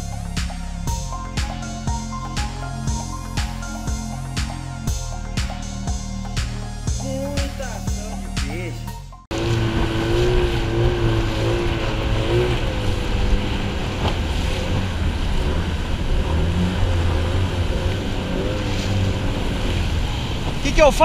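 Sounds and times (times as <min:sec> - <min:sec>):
outboard motor running: 0:00.0 - 0:08.4, 0:09.3 - 0:21.0
wind on microphone: 0:09.3 - 0:20.7
rushing water: 0:09.3 - 0:21.0
water splashing against hull: 0:09.3 - 0:21.0.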